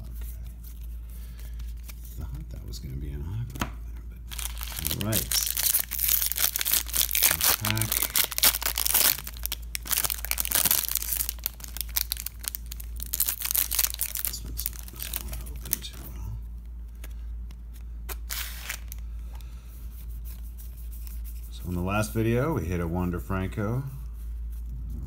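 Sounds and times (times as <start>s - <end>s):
foil wrapper tearing and crinkling: 4.3s - 16.0s, 18.1s - 19.0s.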